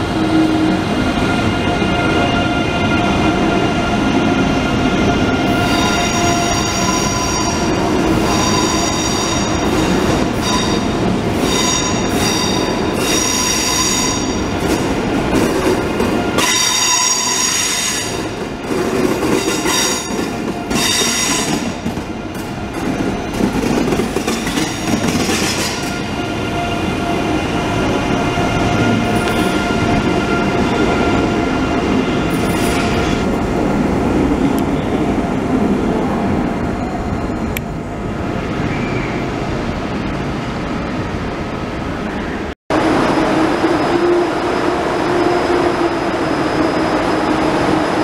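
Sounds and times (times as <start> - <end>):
train rumble and hum: 0.0 - 48.0
train wheels squealing: 5.4 - 14.5, 16.4 - 18.4, 19.4 - 21.8, 38.6 - 39.3.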